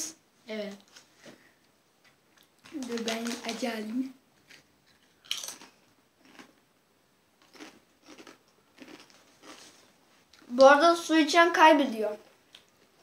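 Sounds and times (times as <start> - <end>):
chip crunching: 2.4 - 6.6, 7.4 - 10.5.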